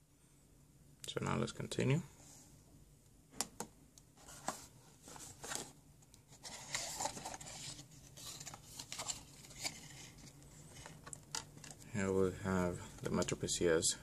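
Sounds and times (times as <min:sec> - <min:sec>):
cardboard and paper rustling: 0:04.2 - 0:11.8.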